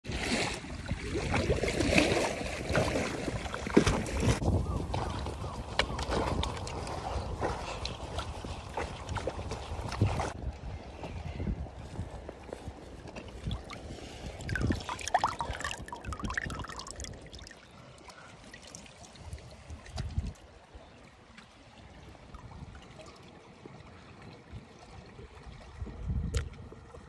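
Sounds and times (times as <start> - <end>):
trickling water: 13.0 - 27.0
hand splashing in water: 14.4 - 17.6.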